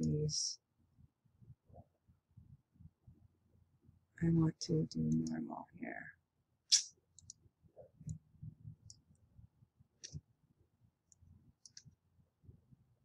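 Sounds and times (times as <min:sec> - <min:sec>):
mouse and keyboard clicks: 0:11.6 - 0:11.9.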